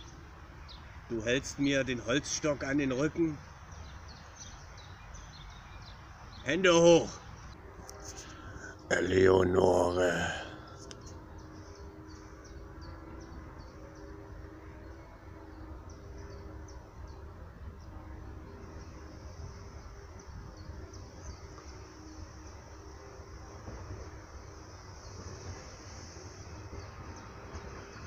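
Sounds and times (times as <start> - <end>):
faint hum: 0.0 - 28.0.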